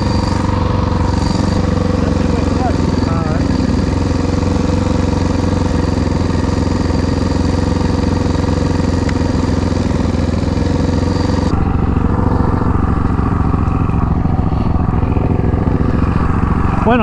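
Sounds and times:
motorcycle engine running: 0.0s - 17.0s.

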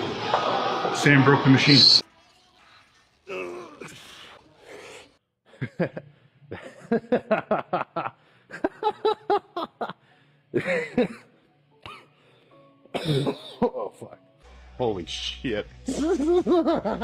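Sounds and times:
person laughing: 15.9s - 17.0s.

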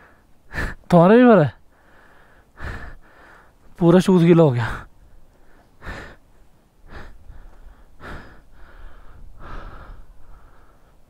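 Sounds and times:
person breathing hard: 0.0s - 0.9s, 1.7s - 3.7s, 4.6s - 11.0s.

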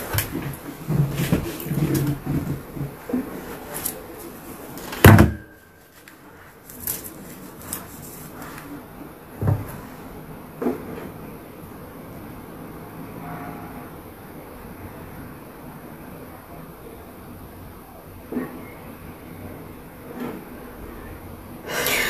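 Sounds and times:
handling knocks and thumps: 0.0s - 3.6s.

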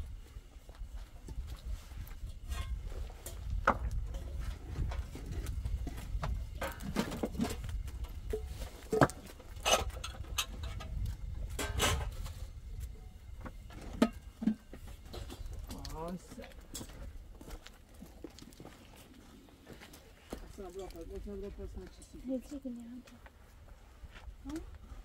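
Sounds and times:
steady low rumble: 0.0s - 17.8s
rocks knocking and clacking: 0.7s - 21.9s.

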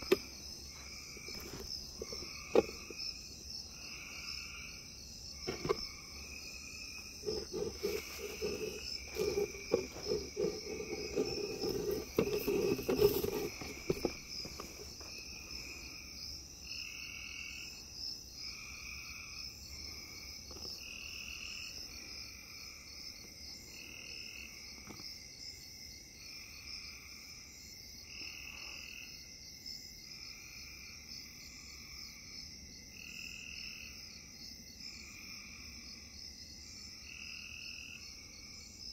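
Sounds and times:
pulsing insect trill: 0.0s - 24.4s.

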